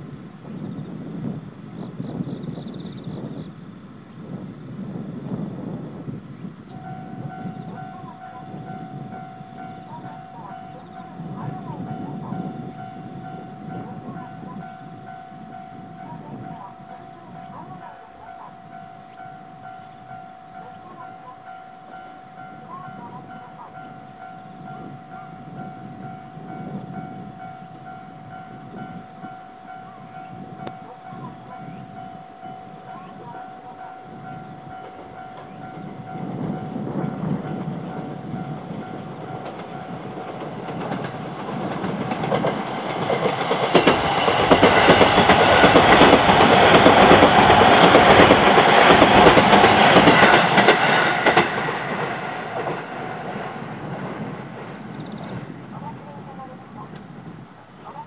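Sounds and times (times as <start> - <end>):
train rumble: 0.0 - 58.0
wheels clacking over rail joints: 36.9 - 55.5.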